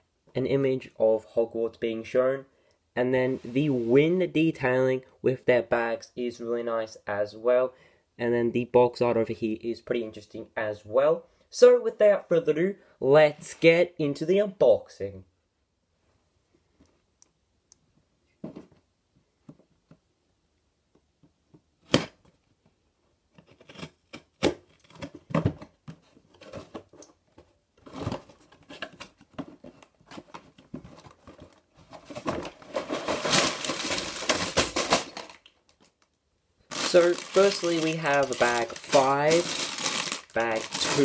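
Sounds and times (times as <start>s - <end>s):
plastic bags crinkling: 31.4s - 36.1s, 36.7s - 41.0s
cardboard tearing and scraping: 32.0s - 35.4s, 36.7s - 41.0s.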